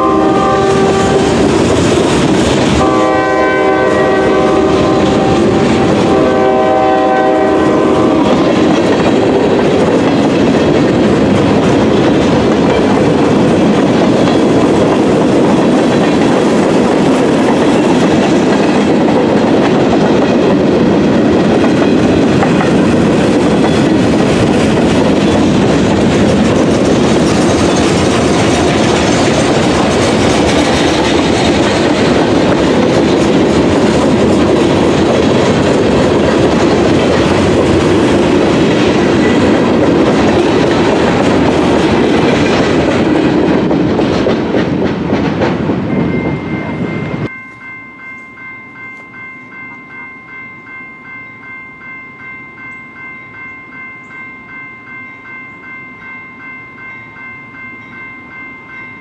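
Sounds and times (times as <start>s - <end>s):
locomotive air horn: 0.0s - 1.5s, 2.8s - 8.5s
freight train rumbling on rails: 0.0s - 59.0s.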